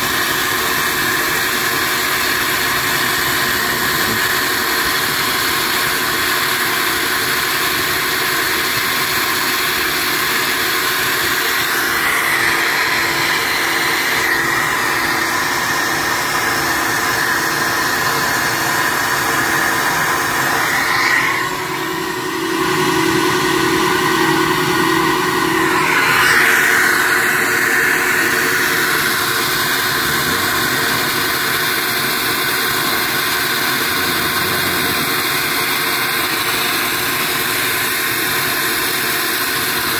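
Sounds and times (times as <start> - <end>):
bench motor drone: 0.0 - 39.9
rush of air: 11.7 - 36.2.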